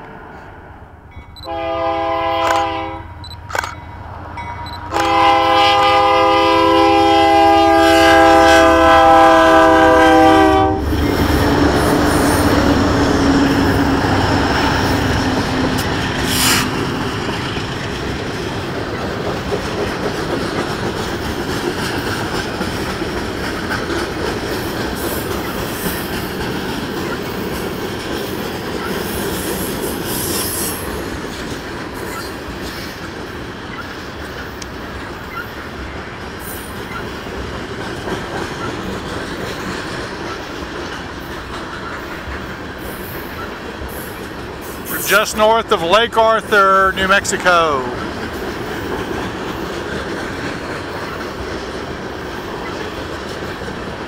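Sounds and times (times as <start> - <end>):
train wheels rumbling and clicking: 1.1 - 54.0
locomotive air horn blast: 1.4 - 3.1, 4.9 - 10.9.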